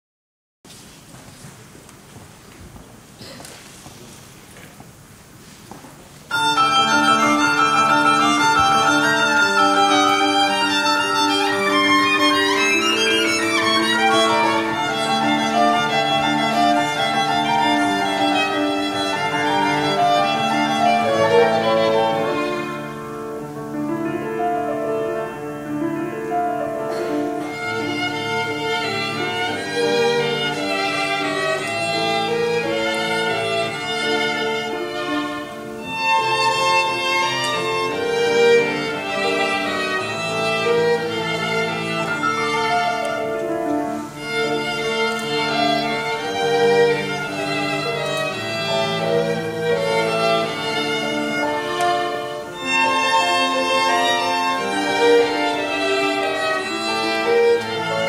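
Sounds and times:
grand piano: 0:00.7 - 0:58.0
violins: 0:06.2 - 0:58.0.

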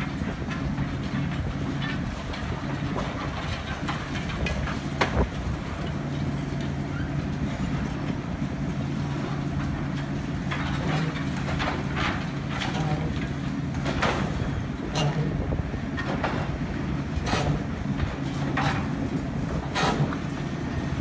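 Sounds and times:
diesel excavator engine running: 0:00.0 - 0:21.0.

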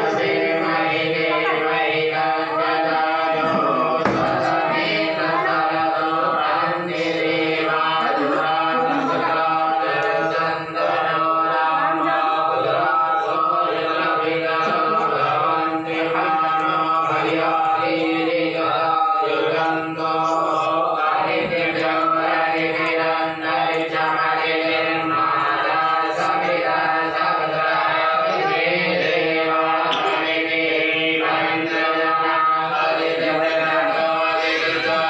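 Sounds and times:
devotional mantra chanting: 0:00.0 - 0:35.0.

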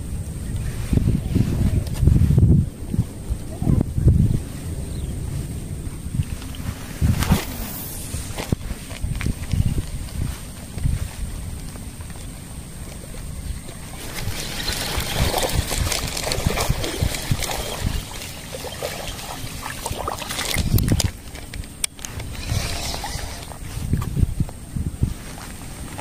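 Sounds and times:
wind on microphone: 0:00.0 - 0:26.0
water splashing and sloshing: 0:12.8 - 0:24.0.

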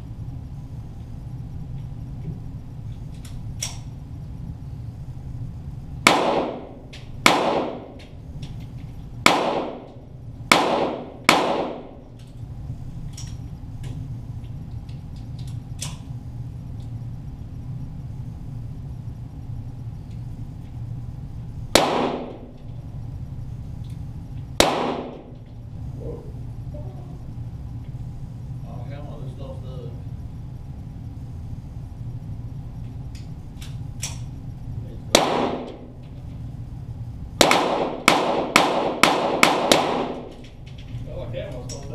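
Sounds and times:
pistol shots with echo: 0:06.0 - 0:08.0, 0:09.2 - 0:09.9, 0:10.5 - 0:12.0, 0:21.8 - 0:22.5, 0:24.6 - 0:25.4, 0:35.1 - 0:35.9, 0:37.4 - 0:40.3.

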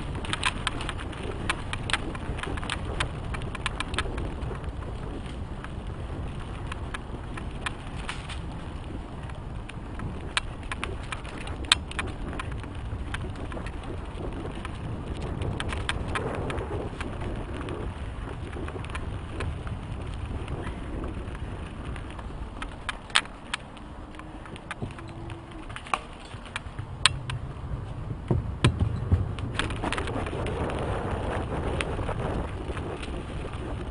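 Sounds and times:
bike clicking and rattling: 0:00.0 - 0:33.9
tyres rumbling on dirt: 0:00.0 - 0:33.9
wind rush on microphone: 0:00.0 - 0:33.9
loud knocks: 0:28.2 - 0:29.4.

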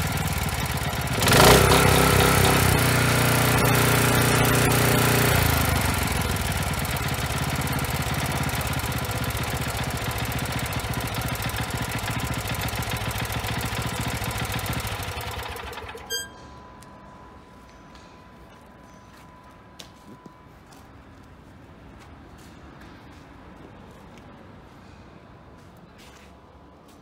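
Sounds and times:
single-cylinder engine running: 0:00.0 - 0:16.4
short metallic ring: 0:16.0 - 0:16.8.

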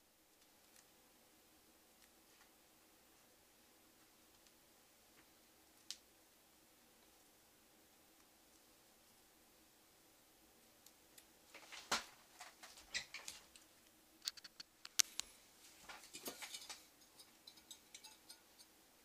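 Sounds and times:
computer hardware clicks and taps: 0:14.2 - 0:15.3.

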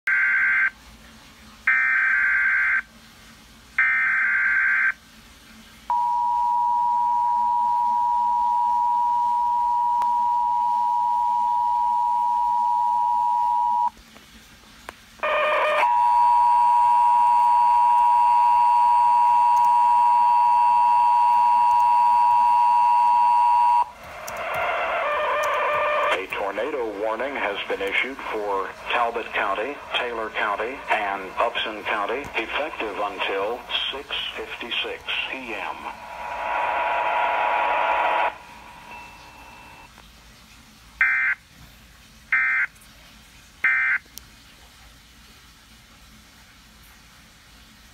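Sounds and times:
single-tone warning alarm: 0:00.1 - 0:00.7, 0:01.7 - 0:02.8, 0:03.8 - 0:05.0, 0:05.9 - 0:13.9, 0:15.2 - 0:24.0, 0:34.8 - 0:39.9, 0:41.0 - 0:41.4, 0:43.7 - 0:44.0
two-tone attention signal: 0:05.9 - 0:13.9, 0:15.2 - 0:23.9, 0:37.6 - 0:39.9
data header squawks: 0:23.8 - 0:39.9.

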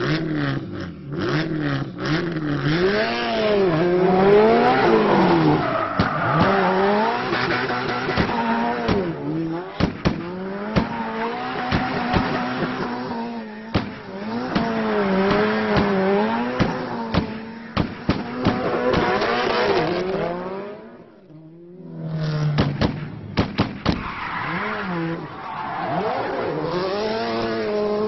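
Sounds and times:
rally car engine revving: 0:00.0 - 0:28.0
exhaust pops: 0:22.5 - 0:24.1.

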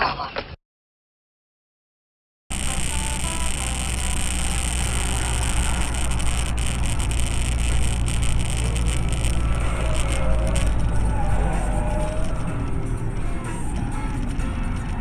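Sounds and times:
even hiss: 0:02.5 - 0:12.4
car engine and road rumble: 0:02.5 - 0:15.0.

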